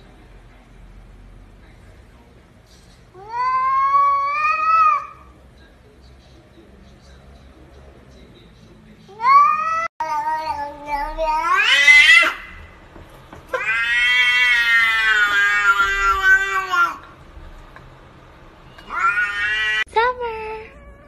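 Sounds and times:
cat meowing: 3.2s - 5.3s, 9.1s - 12.6s, 13.5s - 17.1s, 18.7s - 19.9s, 20.5s - 21.0s.

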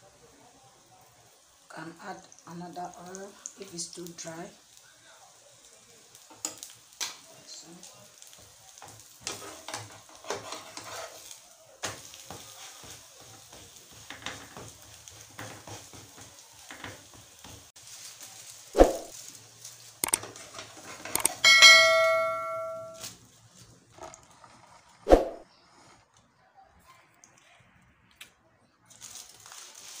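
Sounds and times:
food sizzling in oil: 0.0s - 23.4s, 29.1s - 30.0s
metal spatula scraping a pan: 8.8s - 11.4s
ringing metal clang: 21.3s - 23.0s.

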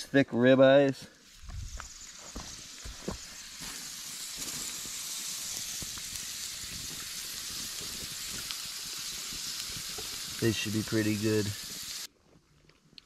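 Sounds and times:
steaks sizzling on grill: 1.6s - 12.1s.

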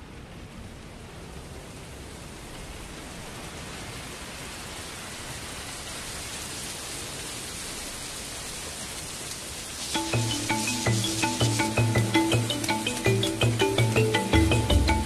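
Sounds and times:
steady rushing noise: 9.7s - 15.0s.

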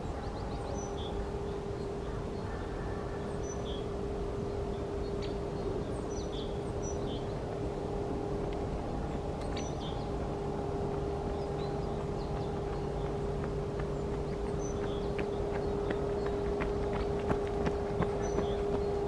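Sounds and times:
mechanical hum: 0.0s - 19.0s
bird chirps: 11.3s - 19.0s.

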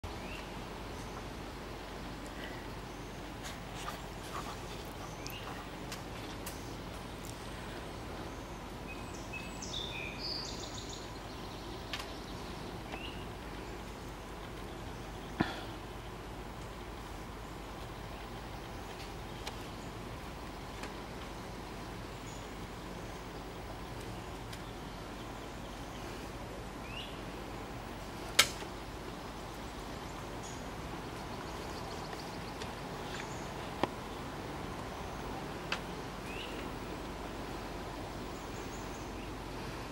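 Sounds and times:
songbird chirps and trill: 0.0s - 39.7s
outdoor background hiss: 0.0s - 39.9s
sharp click: 28.3s - 28.7s.

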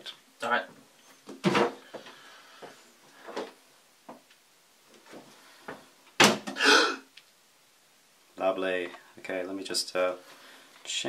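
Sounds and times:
cabinet door banging shut: 1.4s - 1.8s, 6.2s - 6.6s.

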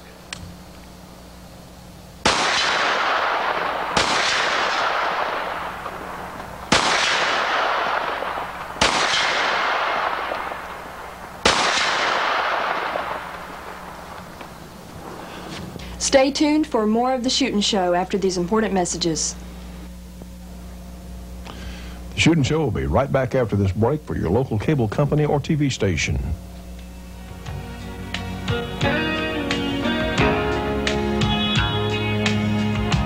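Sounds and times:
gunshots: 2.2s - 15.2s
rolling echo: 2.3s - 15.8s.

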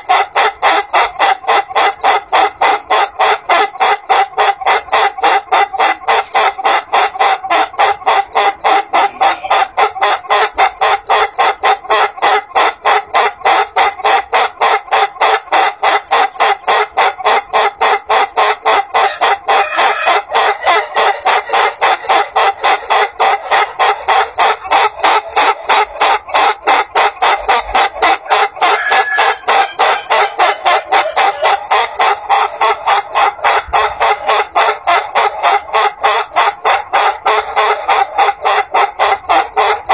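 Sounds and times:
rooster crowing like laughter: 18.7s - 23.6s, 27.2s - 39.9s.

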